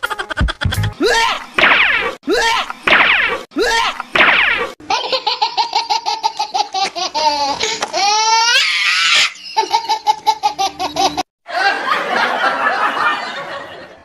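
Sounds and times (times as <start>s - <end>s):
high-pitched laughter: 0.0s - 1.5s, 4.8s - 12.1s
rough laugh: 11.5s - 14.0s.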